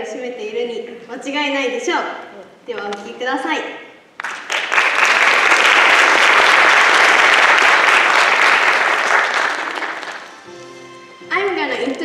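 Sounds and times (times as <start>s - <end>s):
audience applauding: 4.2s - 10.7s.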